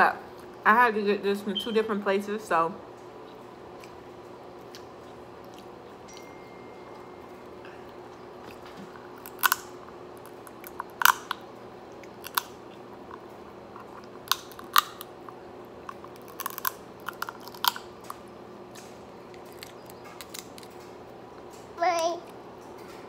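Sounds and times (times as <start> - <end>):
chewing and smacking: 2.9 - 23.0
crab shells cracking: 8.6 - 21.0.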